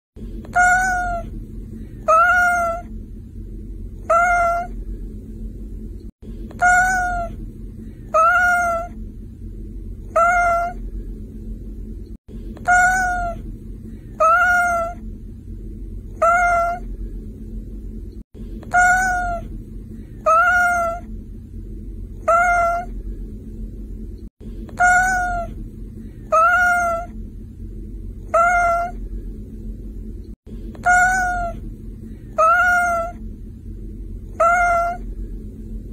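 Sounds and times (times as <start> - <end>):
low steady hum: 0.2 - 35.9
cat meowing: 0.5 - 1.3, 2.0 - 2.9, 4.0 - 4.8, 6.6 - 7.4, 8.1 - 9.0, 10.1 - 10.8, 12.6 - 13.4, 14.2 - 15.0, 16.2 - 16.8, 18.7 - 19.5, 20.2 - 21.1, 22.2 - 22.9, 24.7 - 25.6, 26.2 - 27.2, 28.3 - 29.0, 30.8 - 31.6, 32.3 - 33.2, 34.3 - 35.0.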